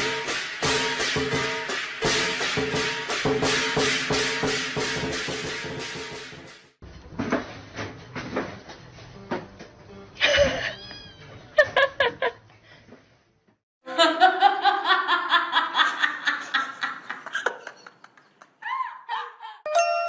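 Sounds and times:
person laughing: 10.2s - 11.0s, 11.6s - 12.4s, 13.9s - 19.7s.

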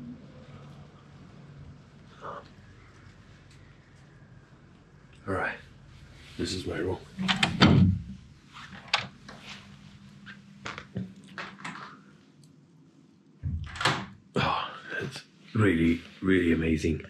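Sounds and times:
faint steady hum: 0.0s - 17.0s
wooden door thumping: 7.2s - 8.2s, 13.4s - 14.2s.

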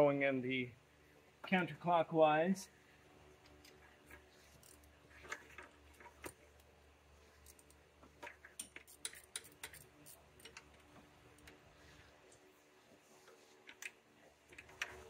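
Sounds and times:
ratchet clicking: 8.5s - 10.7s.

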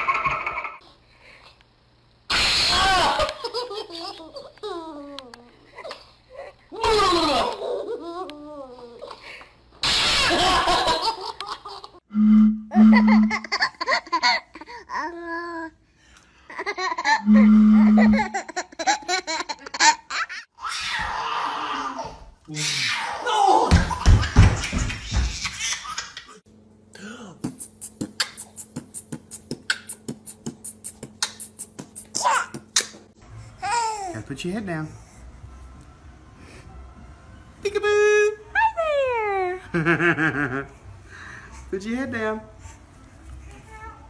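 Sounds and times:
baby laughing: 13.0s - 15.6s, 17.9s - 20.8s, 21.9s - 26.4s, 30.8s - 33.0s
man beatboxing: 27.4s - 32.9s.

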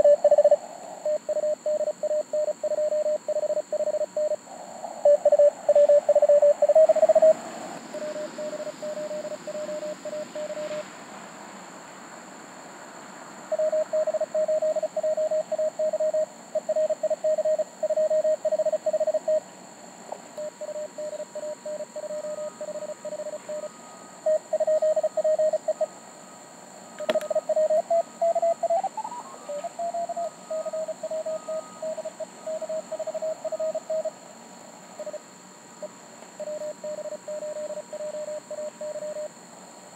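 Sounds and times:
morse code tones: 8.0s - 10.8s, 13.6s - 19.4s
sharp click: 27.0s - 27.3s.

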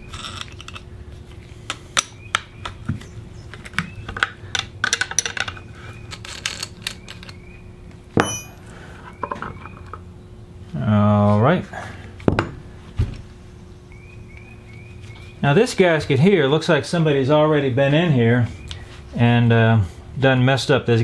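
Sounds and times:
metallic clink with ring: 8.2s - 8.6s.

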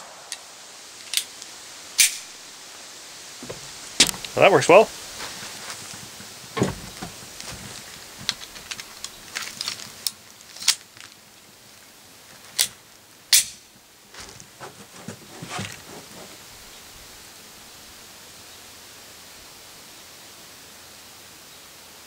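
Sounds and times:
pistol metallic clicks: 1.0s - 2.3s, 13.3s - 13.6s.

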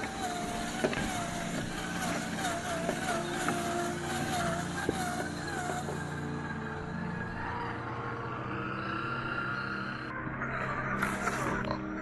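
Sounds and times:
toy truck motor whining: 0.0s - 7.8s, 11.0s - 11.7s.

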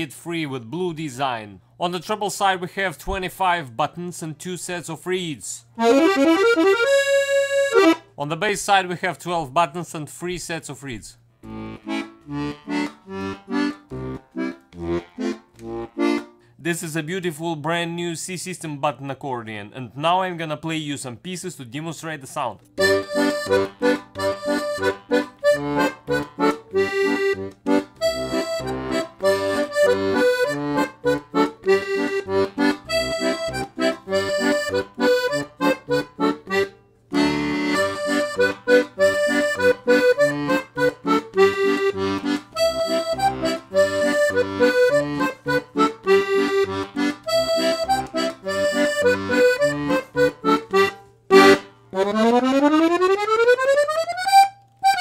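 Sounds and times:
button accordion playing lively tune: 5.8s - 8.1s, 11.4s - 16.4s, 22.8s - 55.0s.

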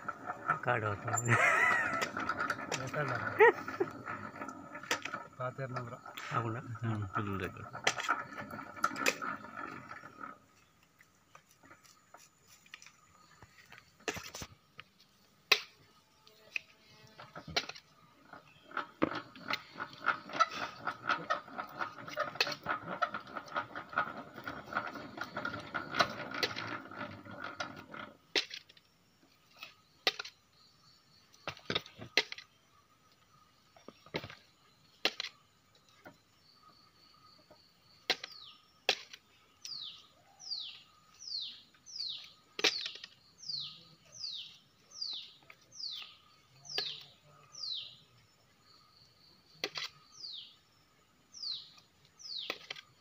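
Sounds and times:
honey extractor whirring and rattling: 0.0s - 14.6s, 16.3s - 32.6s, 37.4s - 48.0s, 51.3s - 53.0s.

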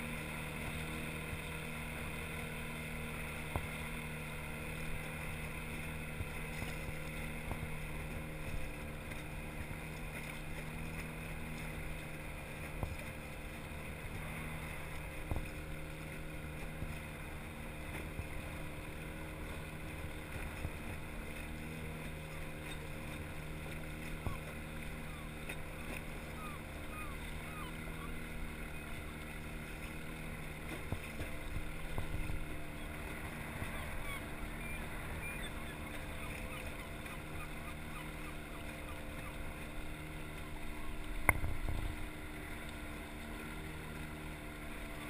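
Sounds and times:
outboard motor running: 0.0s - 45.0s
water: 0.0s - 45.0s
light knocks against hull: 3.3s - 4.0s, 4.9s - 26.2s, 29.0s - 34.0s, 35.4s - 43.4s.

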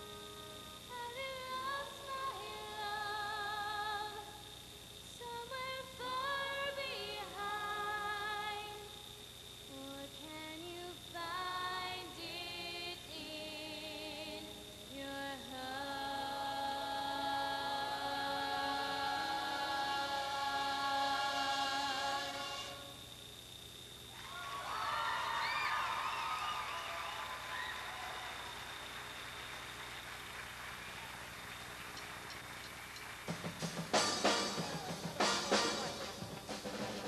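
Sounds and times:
woman singing into a microphone: 0.0s - 4.4s, 5.2s - 8.9s, 9.7s - 22.3s.

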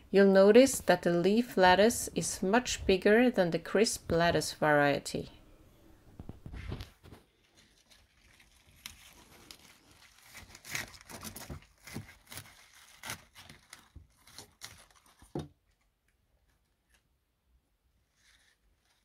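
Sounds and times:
lettuce leaves crunching: 7.2s - 15.3s
knife cutting lettuce: 7.6s - 15.4s.

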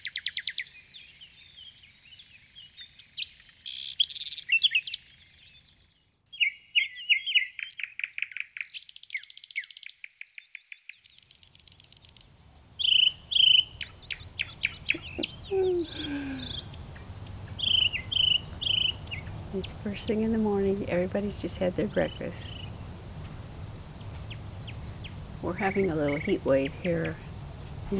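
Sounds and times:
songbirds chirping and singing: 0.0s - 27.9s
low steady background noise: 11.1s - 27.9s.

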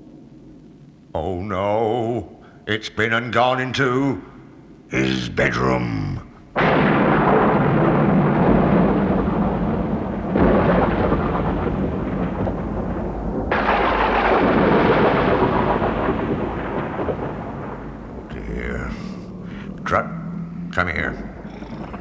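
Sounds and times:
deep loud rumbling: 5.2s - 22.0s.

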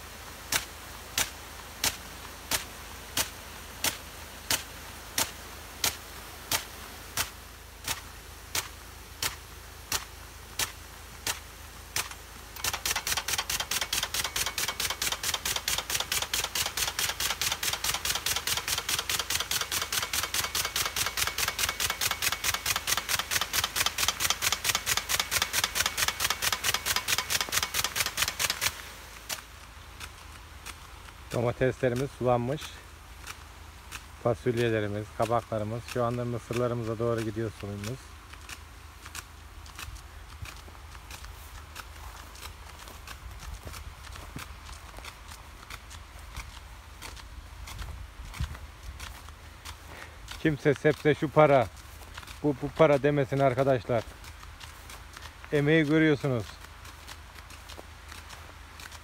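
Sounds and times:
water spray hissing: 0.0s - 39.4s
impact sprinkler clicking: 0.4s - 59.0s.

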